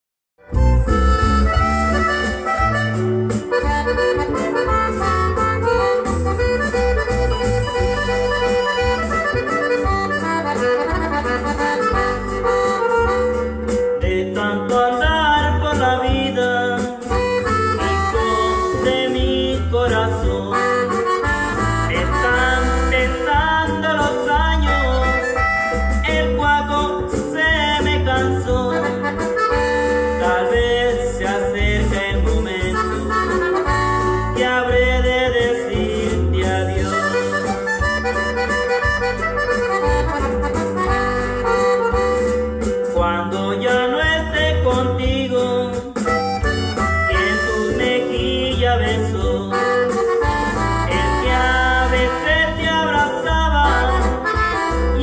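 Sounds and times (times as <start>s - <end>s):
accordion-led music: 0.4s - 55.0s
man singing into microphone: 13.9s - 37.5s, 42.8s - 55.0s.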